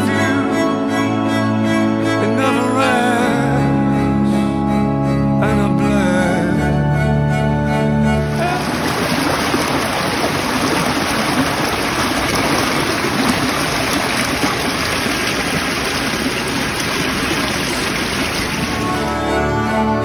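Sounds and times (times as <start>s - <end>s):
creek rushing over stones: 8.2s - 19.3s.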